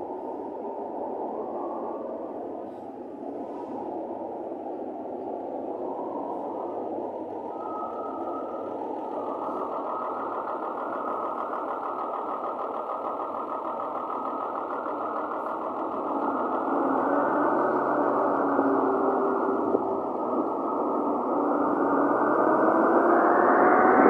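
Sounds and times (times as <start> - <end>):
bus diesel engine running: 6.2 - 23.8.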